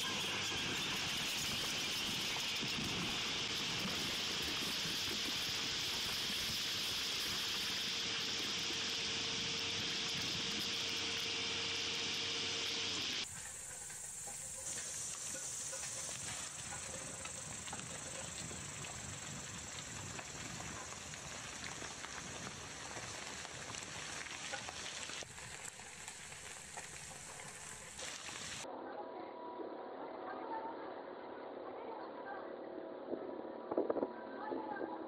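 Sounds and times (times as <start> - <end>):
excavator working: 0.0 - 18.3
high-pitched hiss: 0.0 - 28.6.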